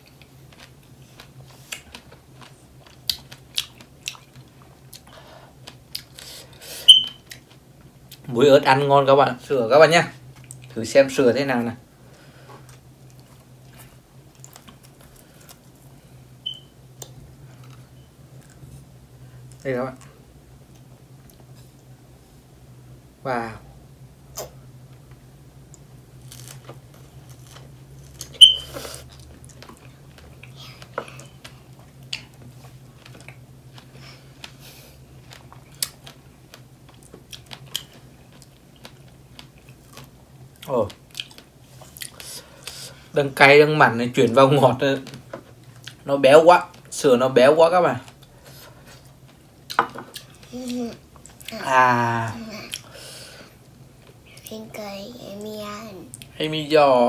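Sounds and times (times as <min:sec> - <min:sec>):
people chewing strawberries: 0:00.0 - 0:06.7, 0:12.6 - 0:15.9, 0:25.7 - 0:43.0, 0:45.6 - 0:46.0
low steady hum: 0:00.0 - 0:57.0.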